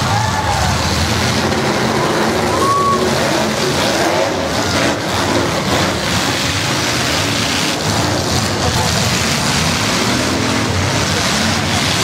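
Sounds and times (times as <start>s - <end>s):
car engines running and revving: 0.0s - 12.0s.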